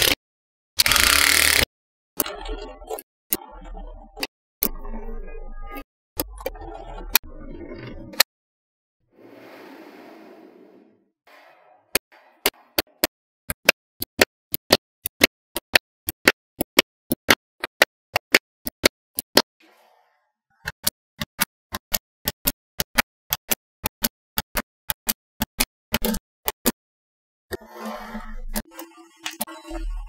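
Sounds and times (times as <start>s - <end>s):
magnetic balls clicking: 12.4s - 19.5s.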